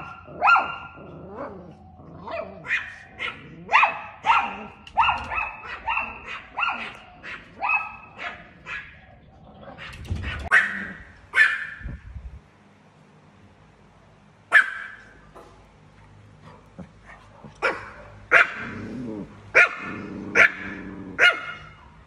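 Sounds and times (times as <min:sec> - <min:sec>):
small dog barking: 0:00.0 - 0:09.0, 0:09.7 - 0:12.0, 0:14.5 - 0:15.7, 0:16.4 - 0:18.9, 0:19.5 - 0:22.0.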